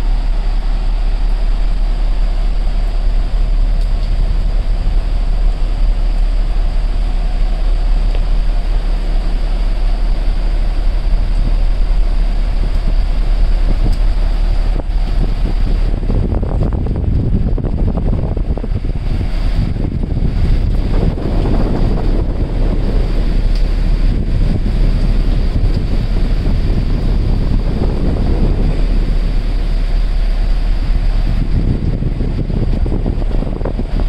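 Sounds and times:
rush of water: 0:00.0 - 0:34.0
wind buffeting microphone: 0:00.0 - 0:34.0.

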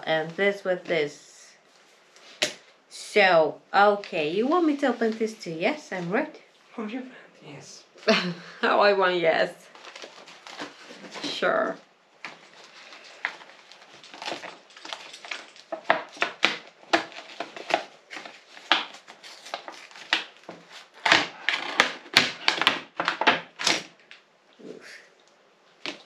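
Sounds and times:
packaging crinkling and ripping: 0:09.7 - 0:11.3, 0:12.2 - 0:24.2.

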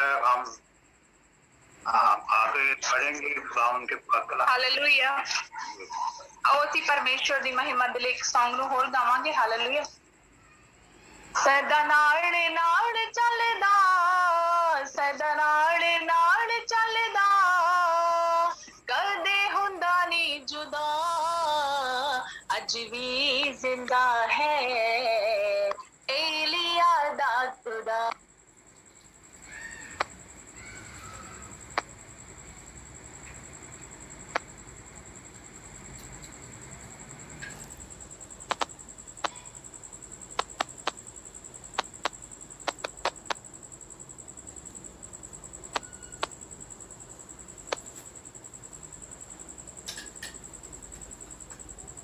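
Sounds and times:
faint high-pitched whine: 0:00.0 - 0:52.0
sharp irregular clicks: 0:38.4 - 0:39.4, 0:40.3 - 0:41.1, 0:41.7 - 0:43.4, 0:45.7 - 0:46.4, 0:47.7 - 0:48.0.

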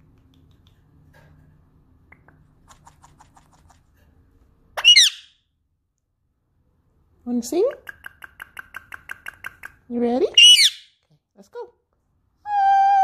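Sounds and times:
parakeet squawk: 0:04.8 - 0:05.4, 0:10.4 - 0:10.9.

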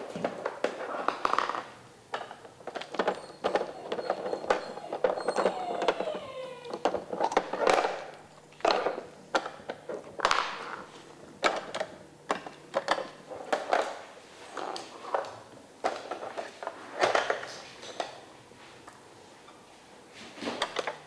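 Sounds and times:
dog pushing puzzle pieces: 0:00.2 - 0:10.8.

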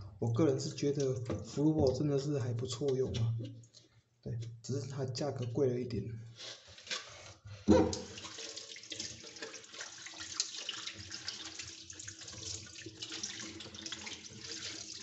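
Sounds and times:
tap water splashing on plastic: 0:07.7 - 0:15.0.

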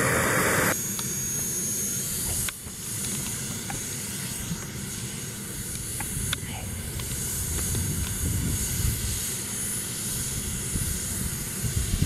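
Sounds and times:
jet turbine whining: 0:00.0 - 0:01.6.

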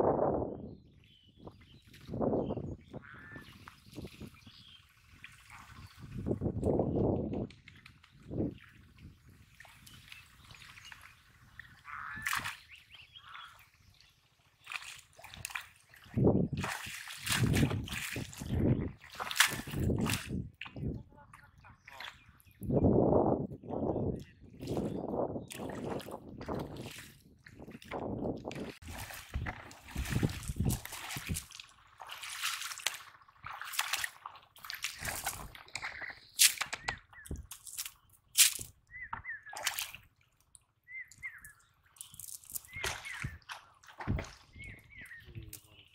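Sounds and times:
water sloshing around net: 0:14.4 - 0:20.8, 0:25.5 - 0:36.6, 0:39.4 - 0:40.4, 0:42.0 - 0:44.6.

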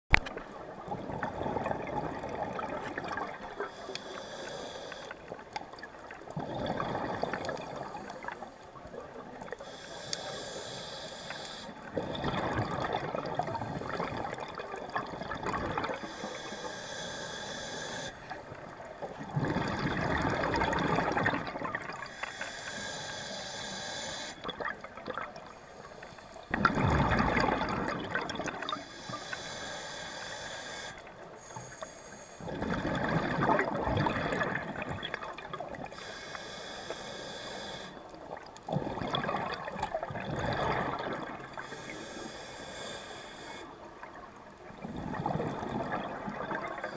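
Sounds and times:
exhaled bubbles rushing: 0:00.6 - 0:03.6, 0:05.7 - 0:08.4, 0:11.8 - 0:16.0, 0:18.5 - 0:22.1, 0:24.4 - 0:25.5, 0:26.5 - 0:28.8, 0:32.5 - 0:35.9, 0:38.3 - 0:41.6, 0:44.0 - 0:46.8
regulator inhalation hiss: 0:03.6 - 0:05.2, 0:09.6 - 0:11.8, 0:15.9 - 0:18.4, 0:22.0 - 0:24.5, 0:28.7 - 0:32.5, 0:35.9 - 0:38.1, 0:41.6 - 0:43.9.

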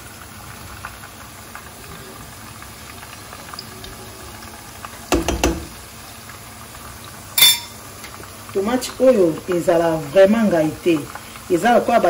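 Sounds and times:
vegetables sizzling in oil: 0:00.0 - 0:12.0
spoon knocking on pan: 0:05.1 - 0:05.8, 0:07.4 - 0:07.8.

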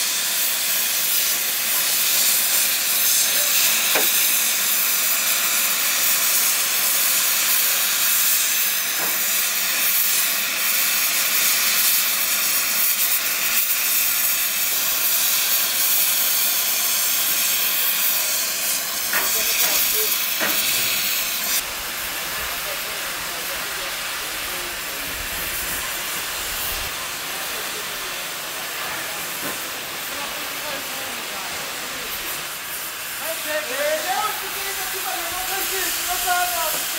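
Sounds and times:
cutting torch hissing: 0:00.0 - 0:36.9.

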